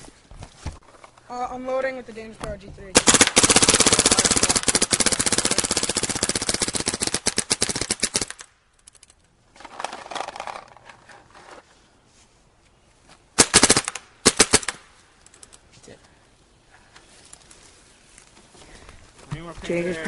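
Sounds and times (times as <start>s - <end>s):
paintball marker rapid firing: 3.0s - 8.5s, 13.4s - 14.8s.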